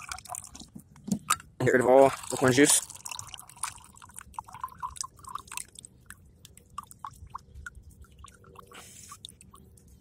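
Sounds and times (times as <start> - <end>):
liquid dripping into a can: 0.0 - 9.9.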